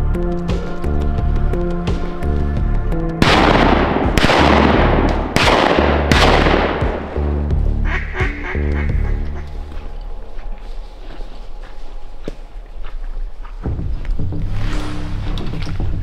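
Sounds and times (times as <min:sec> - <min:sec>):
background music: 0:00.0 - 0:16.0
shotgun shots with echo: 0:03.2 - 0:07.1
duck quacking: 0:07.8 - 0:09.5.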